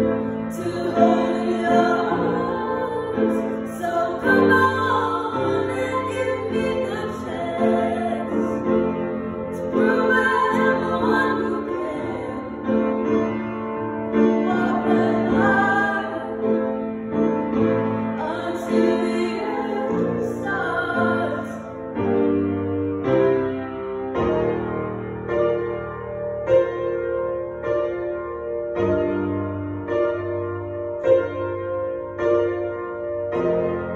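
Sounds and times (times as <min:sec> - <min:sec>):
piano chords: 0:00.0 - 0:33.9
woman singing a ballad: 0:00.5 - 0:12.8, 0:14.4 - 0:16.6, 0:18.2 - 0:21.8.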